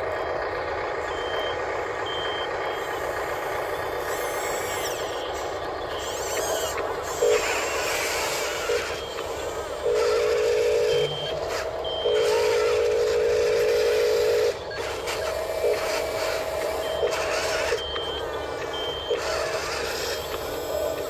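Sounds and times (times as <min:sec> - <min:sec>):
loud mechanical buzz: 0:02.0 - 0:21.0
short high-pitched beeps: 0:08.7 - 0:19.3.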